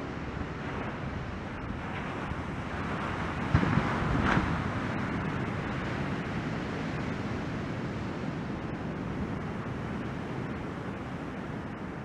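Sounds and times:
wind on microphone: 0:00.0 - 0:12.0
breaking surf: 0:00.4 - 0:07.4.

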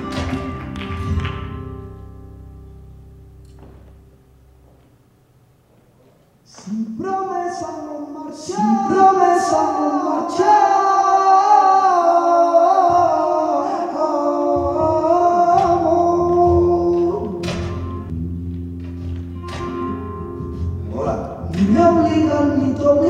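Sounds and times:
low steady notes: 0:00.0 - 0:23.0
man singing flamenco: 0:06.5 - 0:17.8, 0:20.9 - 0:23.0.

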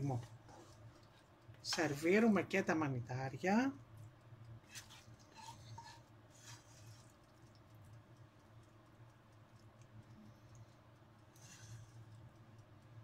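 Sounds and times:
low steady hum: 0:00.0 - 0:13.0
spoon scraping frying pan: 0:00.1 - 0:02.0, 0:04.6 - 0:07.3.

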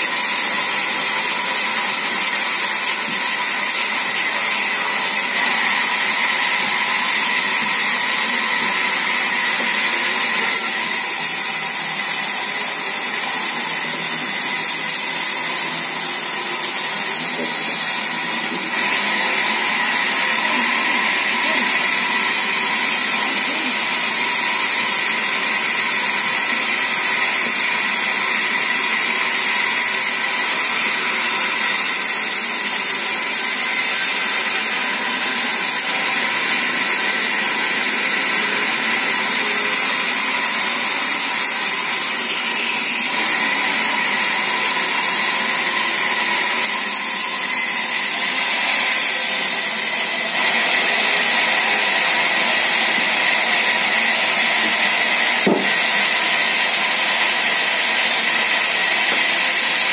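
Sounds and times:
band saw cutting wood: 0:00.0 - 0:59.9.

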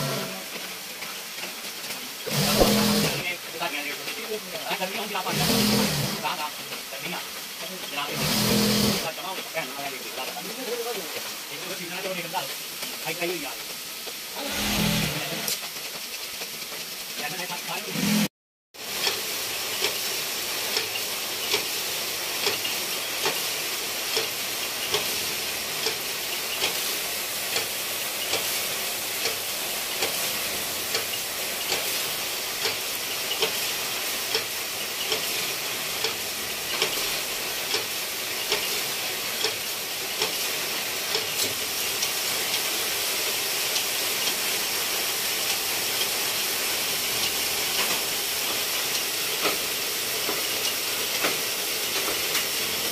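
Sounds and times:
knitting machines hissing: 0:00.0 - 0:16.2, 0:16.8 - 0:52.9
sharp machine clicks: 0:02.2 - 0:03.2.

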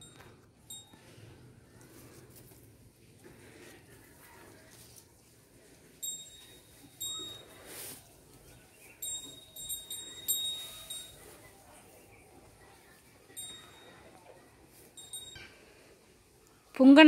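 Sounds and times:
bangles clinking: 0:00.0 - 0:01.1, 0:06.0 - 0:08.0, 0:08.8 - 0:11.4, 0:13.3 - 0:14.2, 0:14.9 - 0:15.7.

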